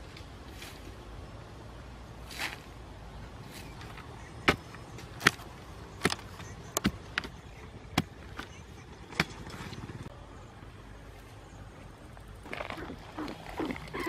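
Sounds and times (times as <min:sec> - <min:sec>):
pole thudding into dry soil: 0:03.8 - 0:08.5.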